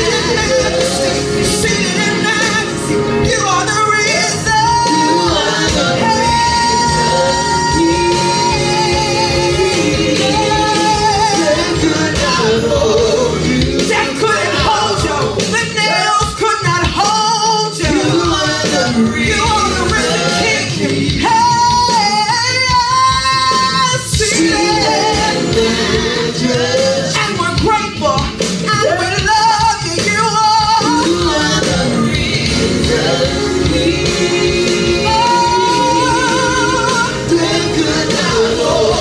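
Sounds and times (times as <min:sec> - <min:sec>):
instrumental backing with beat: 0:00.0 - 0:39.0
people singing gospel: 0:00.0 - 0:39.0.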